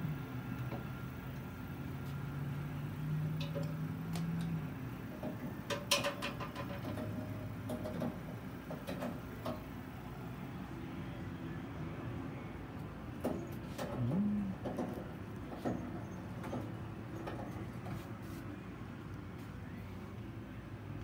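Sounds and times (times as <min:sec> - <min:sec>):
low steady hum: 0:00.0 - 0:21.0
metallic clicks and knocks: 0:03.4 - 0:04.6, 0:05.2 - 0:09.6.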